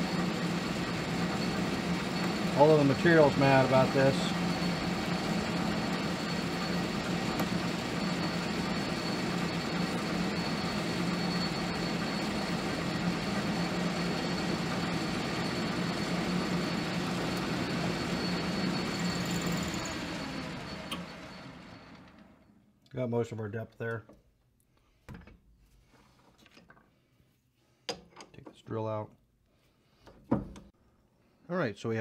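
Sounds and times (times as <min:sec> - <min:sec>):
drill cutting whine: 0:00.0 - 0:22.2
metal lathe humming: 0:00.0 - 0:22.2.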